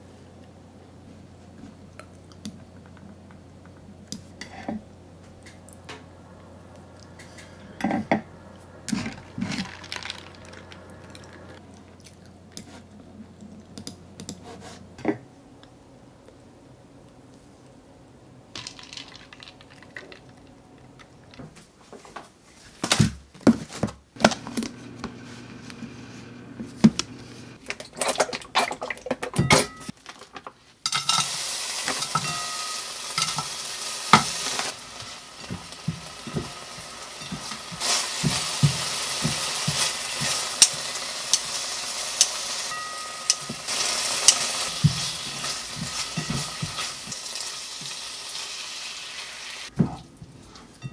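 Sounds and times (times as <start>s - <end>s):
food sizzling in oil: 30.8s - 49.7s
kitchenware knocking and clattering: 45.8s - 46.9s.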